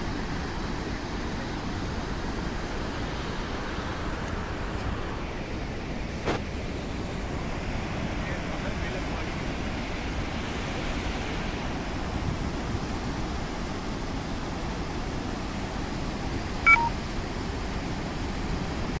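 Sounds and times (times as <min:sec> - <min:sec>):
waterfall roaring: 0:00.0 - 0:19.0
electronic three-note beep: 0:16.7 - 0:17.0.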